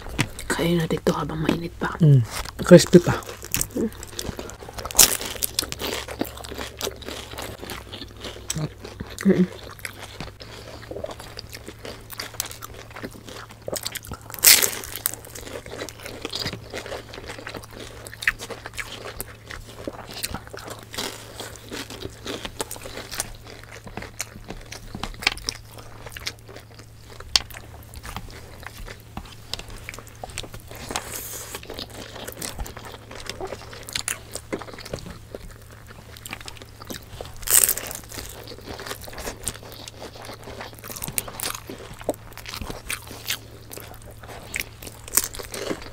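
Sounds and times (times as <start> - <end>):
crunching and chewing: 0.0 - 45.9.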